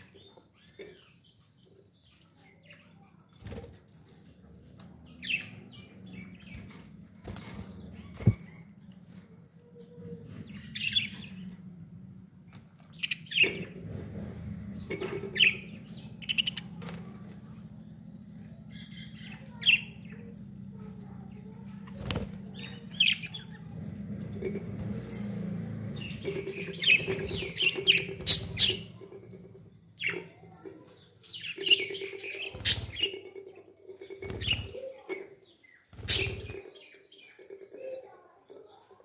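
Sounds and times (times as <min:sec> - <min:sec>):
budgerigars chirping: 0:26.0 - 0:29.0, 0:36.0 - 0:36.7
wing flutters: 0:35.9 - 0:36.8.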